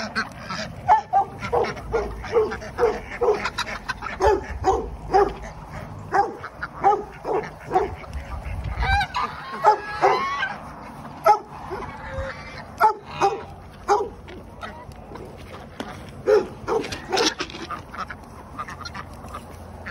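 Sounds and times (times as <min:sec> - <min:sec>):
geese honking: 0:00.0 - 0:19.9.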